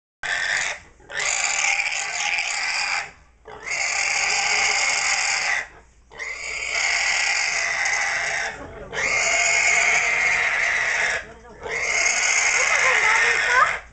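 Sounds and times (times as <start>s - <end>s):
pig squealing in distress: 0.2s - 13.9s.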